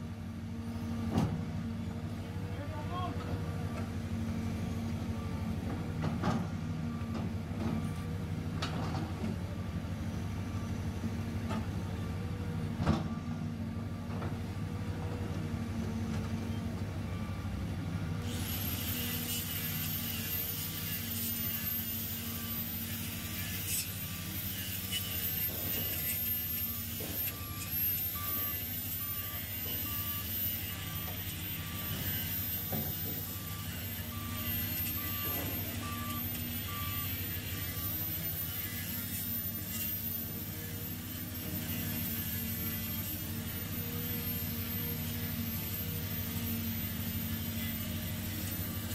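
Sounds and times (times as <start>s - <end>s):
reversing alarm beeping: 25.3s - 38.6s.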